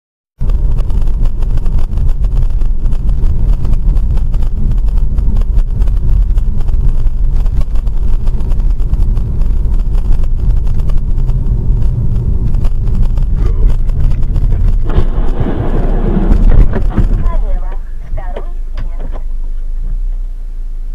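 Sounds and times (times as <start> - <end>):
car road and engine rumble: 0.4 - 20.9
truck sliding on road: 2.9 - 18.3.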